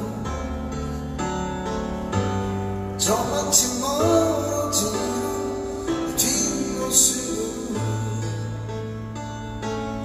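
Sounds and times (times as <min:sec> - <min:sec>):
amplified backing music: 0:00.0 - 0:10.0
man singing into microphone: 0:03.0 - 0:08.7.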